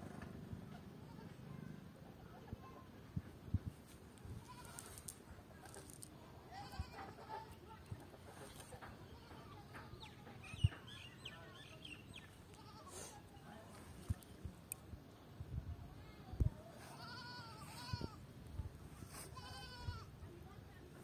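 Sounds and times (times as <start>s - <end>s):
farm animal bleating: 16.8s - 18.2s, 19.2s - 20.1s.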